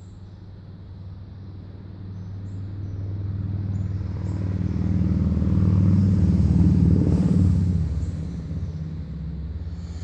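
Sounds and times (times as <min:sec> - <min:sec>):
passing vehicle engine rumble: 0:00.0 - 0:10.0.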